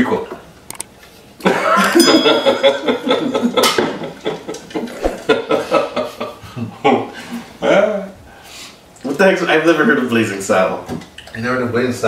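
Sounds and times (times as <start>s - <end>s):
men laughing together: 1.4s - 7.5s.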